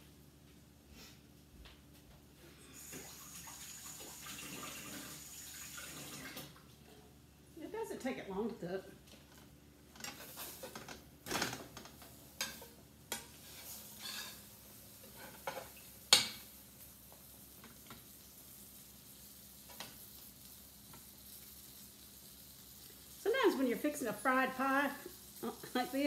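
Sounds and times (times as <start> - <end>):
faint sizzle of frying: 0.0 - 26.0
metal spatula scraping skillet: 12.4 - 15.7.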